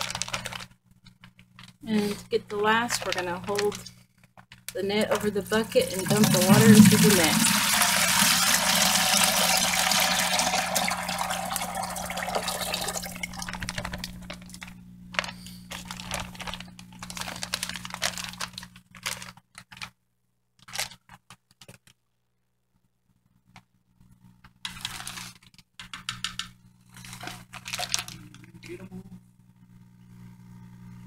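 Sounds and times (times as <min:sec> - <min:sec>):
plastic bag crinkling: 0:00.0 - 0:03.9, 0:08.2 - 0:20.0, 0:20.6 - 0:21.9, 0:24.6 - 0:28.7
low steady hum: 0:00.0 - 0:19.2, 0:26.5 - 0:31.0
water pouring into bucket: 0:05.8 - 0:14.0.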